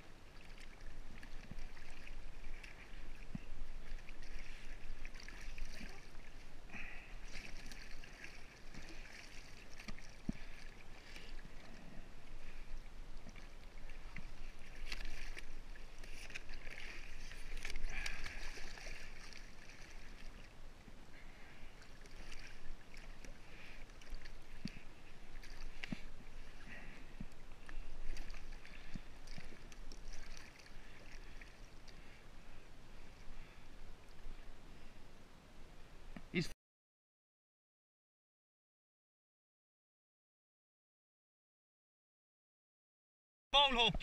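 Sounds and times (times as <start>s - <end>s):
water lapping against kayak hull: 0.0s - 35.0s.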